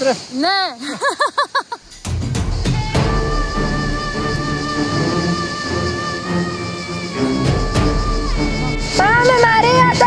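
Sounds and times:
man laughing: 0.8 - 1.9
background music with drum hits: 1.9 - 4.9.

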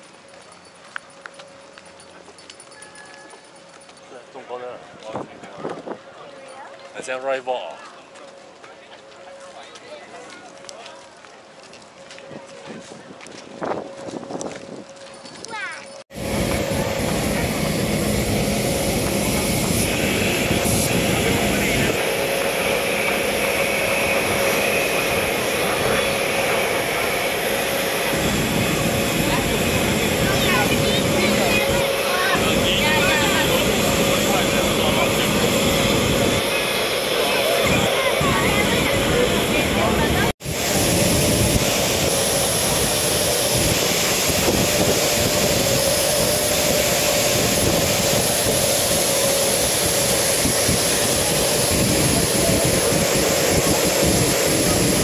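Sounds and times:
crowd chatter: 2.1 - 14.1, 16.2 - 55.0
faint high whine: 15.7 - 55.0
jet aircraft noise: 16.1 - 55.0.

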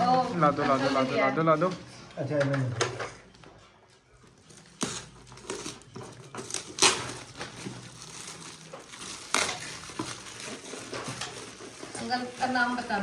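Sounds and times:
gift-wrap paper tearing and crackling: 4.5 - 13.0.

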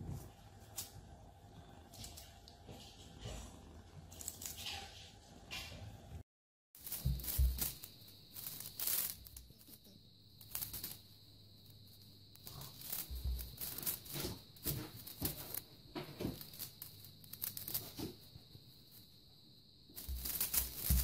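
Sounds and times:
feather toy rustling: 6.8 - 19.1, 19.9 - 21.0
faint high-pitched whine: 6.8 - 21.0.

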